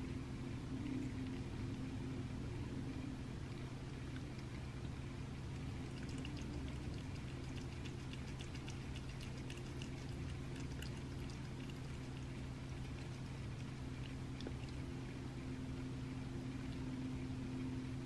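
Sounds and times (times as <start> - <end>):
steady low hum: 0.0 - 18.0
cat eating wet food: 3.3 - 17.2.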